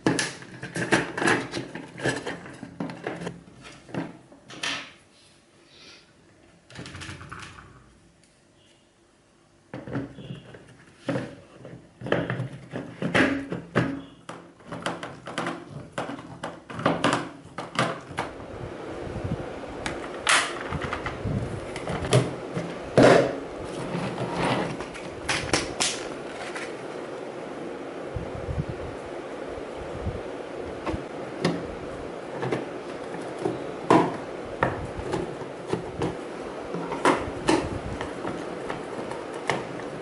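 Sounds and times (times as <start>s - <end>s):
plastic parts knocking and clicking: 0.0s - 4.9s, 9.7s - 18.3s
steady hiss: 5.0s - 6.6s.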